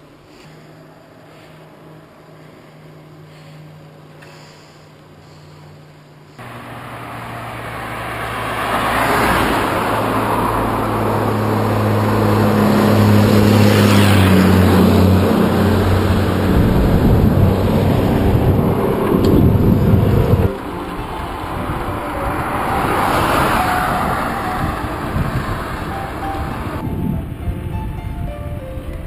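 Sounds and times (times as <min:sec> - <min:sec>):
vehicle passing on wet road: 0:06.4 - 0:26.9.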